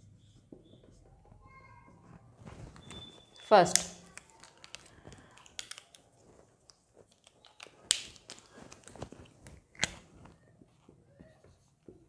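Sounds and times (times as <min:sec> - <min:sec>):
marker sharp clicks: 0:03.4 - 0:06.0.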